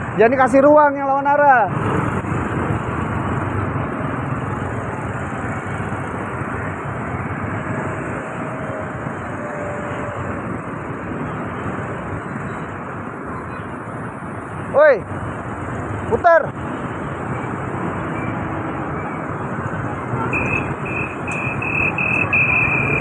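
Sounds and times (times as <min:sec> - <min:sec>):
motorbike engines running: 0:00.0 - 0:23.0.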